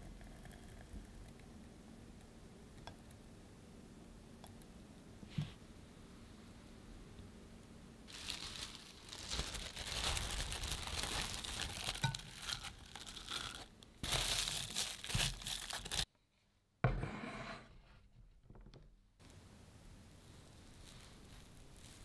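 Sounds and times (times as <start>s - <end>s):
cling film crinkling and tearing: 8.1s - 16.1s.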